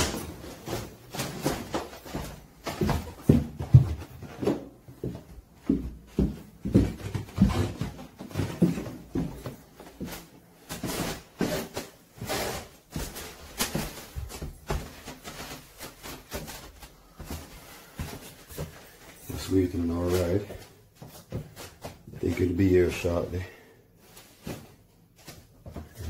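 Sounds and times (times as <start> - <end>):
footsteps: 0.0 - 23.4.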